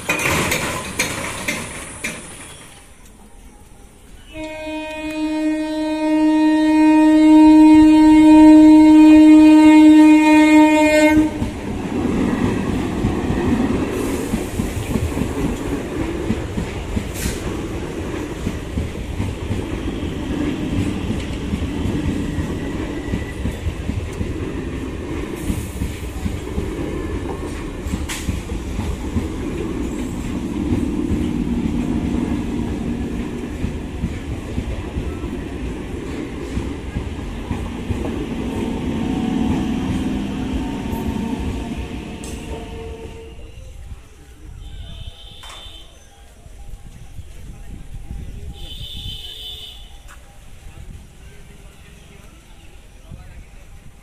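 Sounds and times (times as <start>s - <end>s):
wheels clattering over rail joints: 0.0s - 3.2s
train rumbling: 0.0s - 54.0s
train horn blast: 4.2s - 11.6s, 30.0s - 33.7s, 38.0s - 43.8s, 44.6s - 45.9s, 48.6s - 50.0s.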